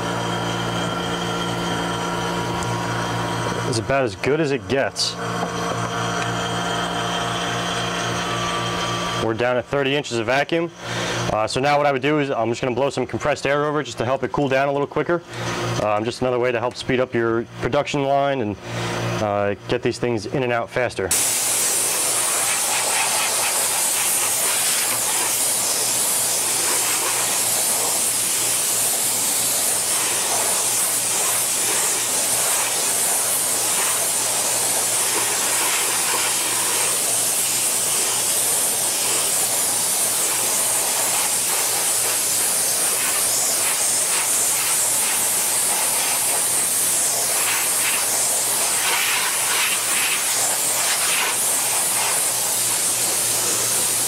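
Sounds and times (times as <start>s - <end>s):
steady low hum: 0.0s - 54.0s
compressed air hissing: 21.1s - 54.0s.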